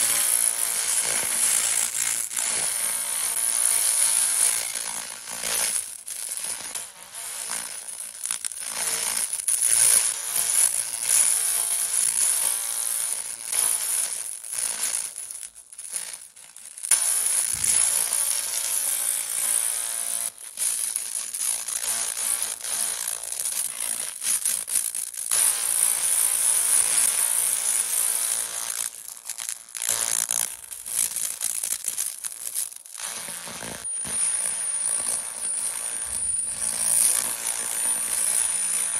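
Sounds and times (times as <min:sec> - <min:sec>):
high-pitched laser whine: 0:33.8 - 0:38.9.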